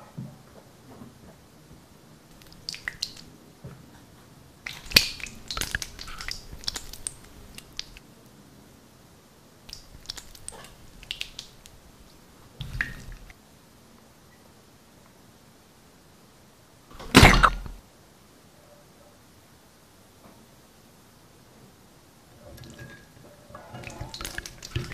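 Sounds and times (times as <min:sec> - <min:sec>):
slime squeezed with wet pops: 0:02.3 - 0:03.3, 0:04.7 - 0:08.0, 0:09.7 - 0:13.3, 0:17.0 - 0:17.8, 0:23.8 - 0:24.9.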